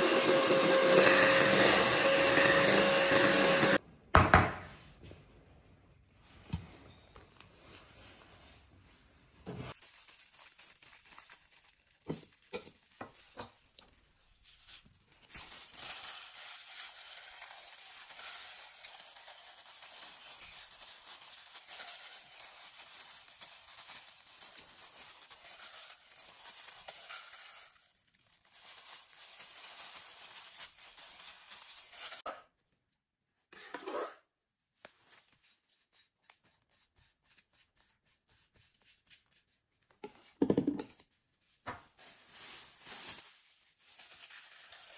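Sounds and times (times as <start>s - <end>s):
plastic glove crinkling: 9.7s - 32.3s, 41.9s - 44.9s.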